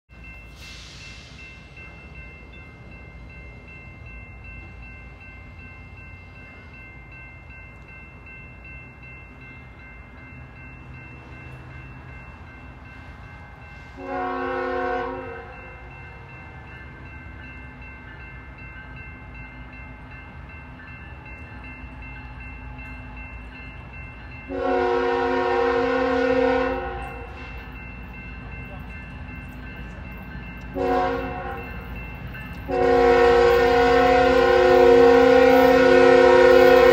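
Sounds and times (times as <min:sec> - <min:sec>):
locomotive air horn: 0:14.0 - 0:15.7, 0:24.5 - 0:27.5, 0:30.8 - 0:31.7, 0:32.7 - 0:36.9.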